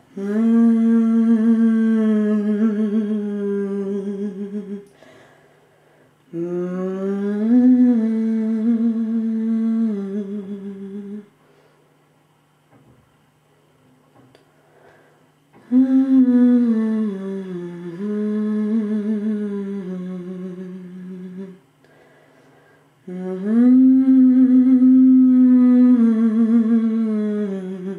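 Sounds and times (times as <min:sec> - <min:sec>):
woman humming: 0:00.0 - 0:05.0, 0:06.3 - 0:11.3, 0:15.6 - 0:22.0, 0:23.0 - 0:27.9.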